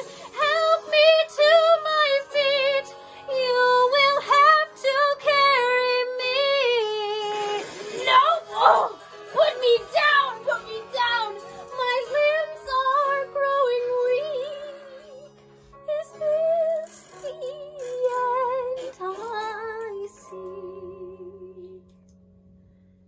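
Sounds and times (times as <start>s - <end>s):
person singing slow melody: 6.1s - 22.1s.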